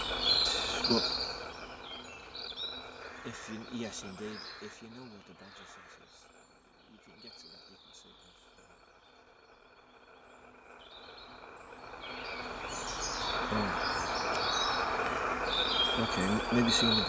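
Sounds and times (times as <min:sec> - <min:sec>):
rushing noise: 0:00.0 - 0:01.8
songbirds chirping and singing: 0:00.0 - 0:17.0.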